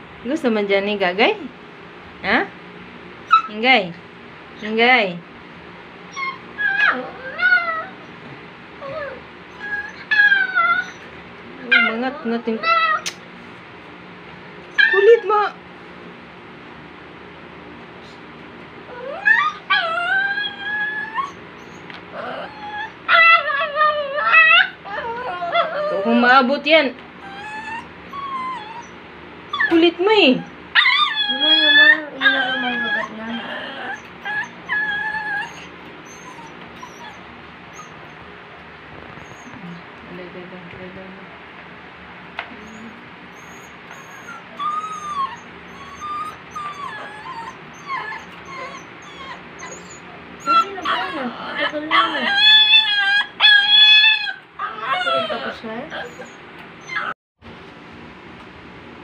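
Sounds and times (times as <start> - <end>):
puppy whining: 3.2 - 3.6, 6.1 - 13.2, 14.7 - 15.6, 18.9 - 26.5, 27.2 - 38.3, 39.0 - 39.9, 42.5 - 57.2.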